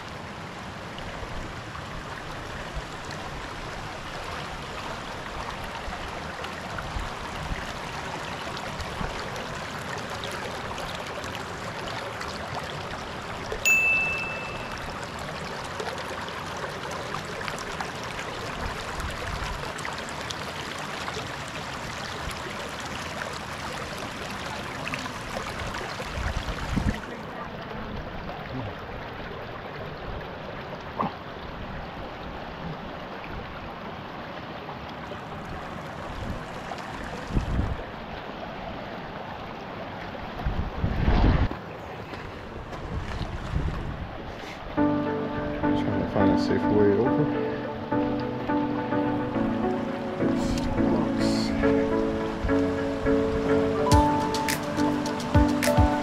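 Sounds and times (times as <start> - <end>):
stream water rushing: 0.0 - 56.0
short high ding: 13.7 - 15.0.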